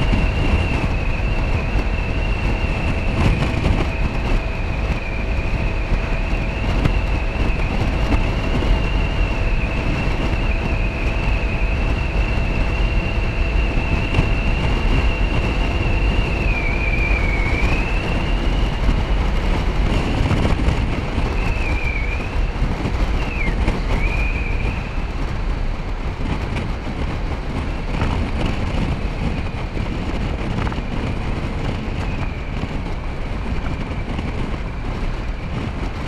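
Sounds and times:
high wavering whine: 0:00.0 - 0:26.9
wind rush on microphone: 0:00.0 - 0:36.0.

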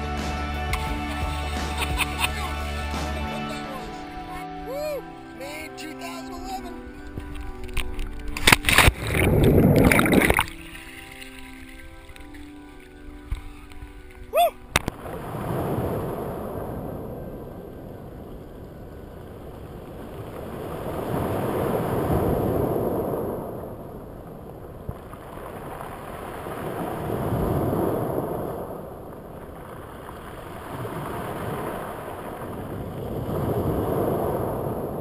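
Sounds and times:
waves washing over cobble beach: 0:07.0 - 0:35.0.

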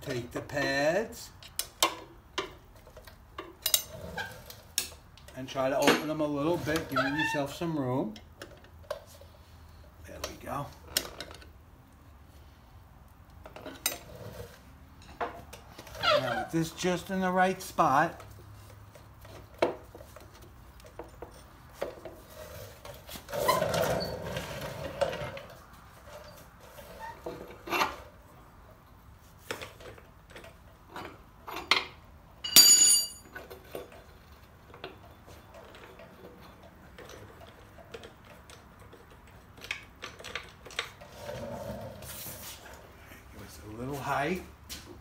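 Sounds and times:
metal clinks and scraping of tools: 0:03.4 - 0:06.9, 0:29.7 - 0:34.1
ringing clank of metal part: 0:32.4 - 0:33.4.

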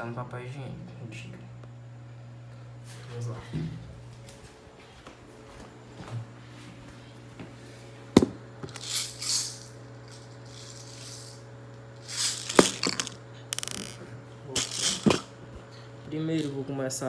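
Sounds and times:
steady low hum: 0:00.0 - 0:17.0
rattle of clicks: 0:08.7 - 0:11.4, 0:12.0 - 0:14.0, 0:14.6 - 0:15.3
handling rustling: 0:12.0 - 0:14.0.

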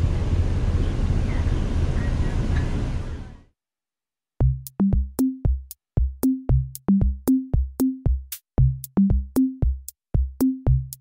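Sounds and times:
moving train rumble: 0:00.0 - 0:03.5
electronic music with drum beat: 0:04.4 - 0:11.0.

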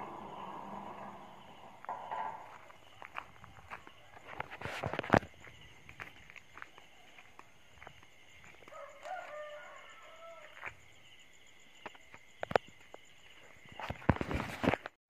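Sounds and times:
night insects droning: 0:00.0 - 0:15.0
rooster crowing: 0:08.6 - 0:10.7.

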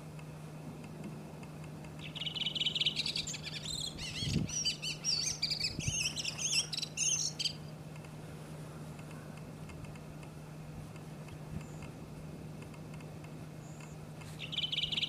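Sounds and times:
bird singing: 0:02.0 - 0:07.8, 0:13.6 - 0:15.0.

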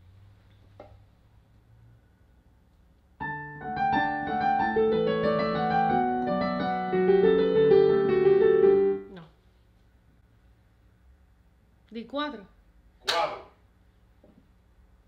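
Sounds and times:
digital piano playing: 0:03.2 - 0:09.1.

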